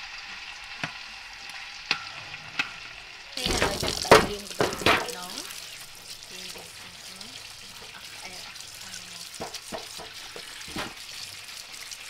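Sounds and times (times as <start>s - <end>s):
tap water running and splashing: 0.0s - 12.0s
stalks knocking against sink: 3.4s - 5.3s, 9.4s - 10.9s.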